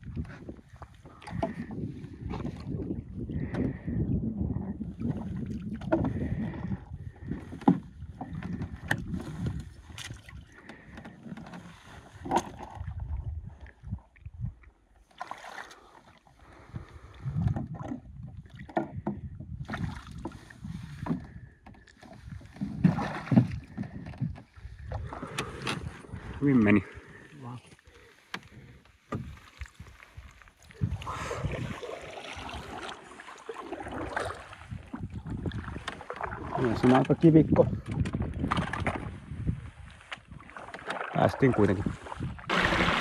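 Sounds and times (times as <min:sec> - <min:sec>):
splashing through shallow water: 0:15.1 - 0:17.1, 0:22.2 - 0:24.0, 0:27.8 - 0:37.1, 0:39.8 - 0:43.0.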